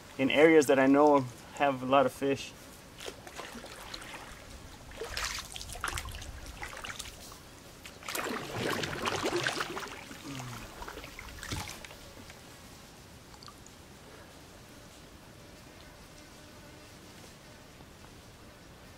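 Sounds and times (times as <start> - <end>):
paddle splashing in water: 3.0 - 12.4.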